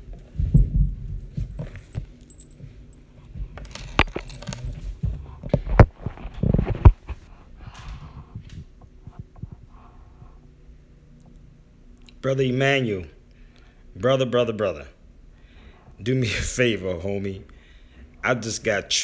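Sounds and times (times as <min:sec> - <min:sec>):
rubbing thumps on microphone: 0:04.7 - 0:10.4.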